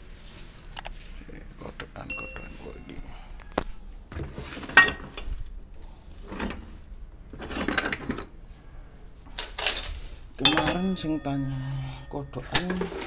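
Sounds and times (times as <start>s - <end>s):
parts rustling and clattering: 9.2s - 11.6s.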